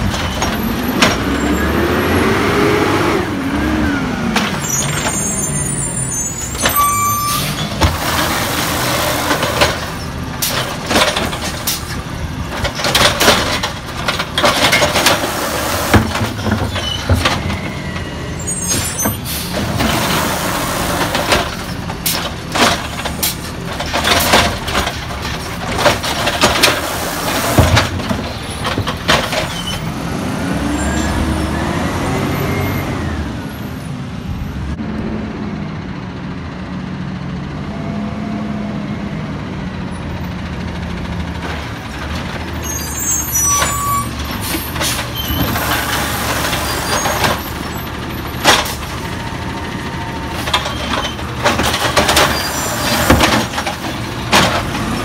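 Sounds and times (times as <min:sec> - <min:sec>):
truck engine revving: 0:00.0 - 0:06.5, 0:07.5 - 0:33.5
air brakes hissing: 0:18.4 - 0:19.7.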